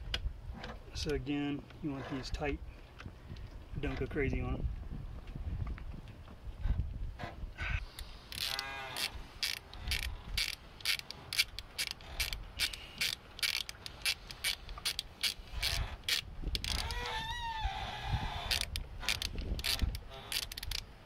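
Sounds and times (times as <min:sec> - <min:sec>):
ratchet clicking: 0:08.0 - 0:16.9, 0:18.5 - 0:20.8.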